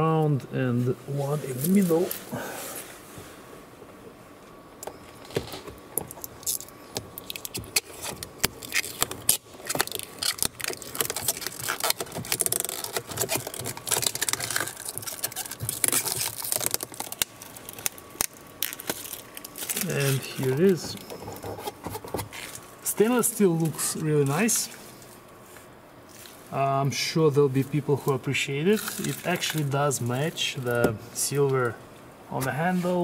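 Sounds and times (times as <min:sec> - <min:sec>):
plastic film crinkling as peeled: 0:01.5 - 0:02.3, 0:05.2 - 0:25.2, 0:27.6 - 0:31.3.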